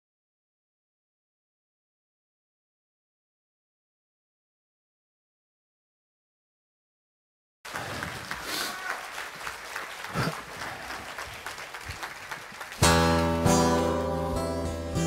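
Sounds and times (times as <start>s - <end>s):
audience applauding: 7.7s - 14.5s
acoustic guitar strumming chords: 12.8s - 15.0s.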